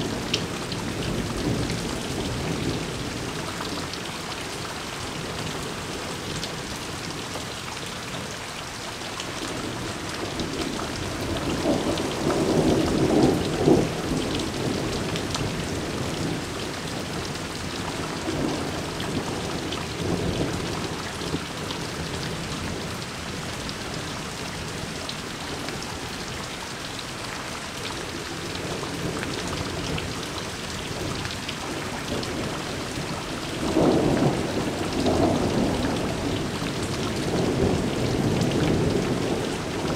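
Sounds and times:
heavy rain falling: 0.0s - 39.9s
thunder rumbling: 31.7s - 39.9s.

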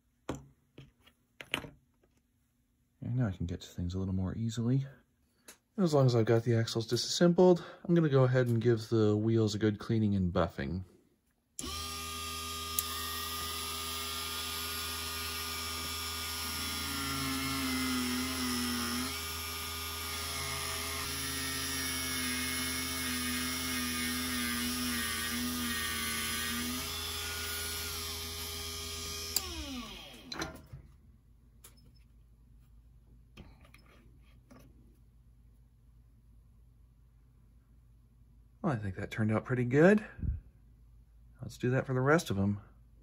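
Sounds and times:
rotary tool buffing metal: 11.6s - 30.3s.

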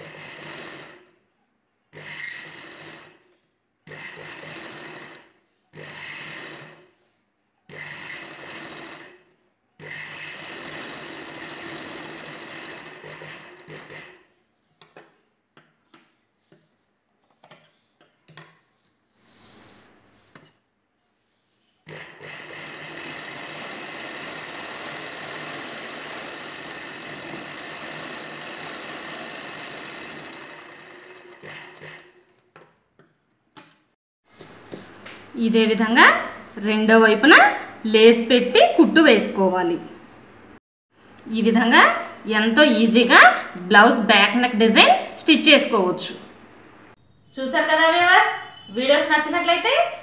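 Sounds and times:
sewing machine stitching: 0.0s - 1.2s, 1.9s - 7.1s, 7.7s - 14.5s, 21.8s - 32.8s.

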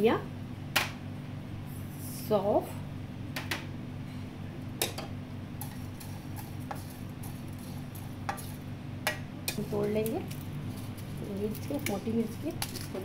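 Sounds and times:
steady low hum: 0.0s - 13.0s
spatula and seeds clicking in pan: 4.8s - 13.0s.

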